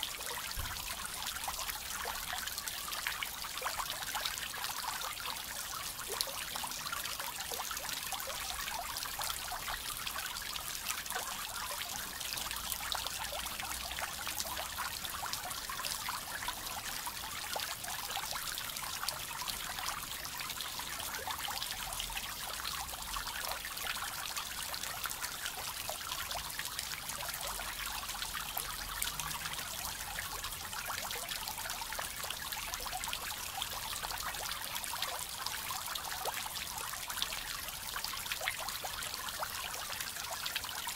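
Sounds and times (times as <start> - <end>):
fountain water splashing: 19.7 - 40.9.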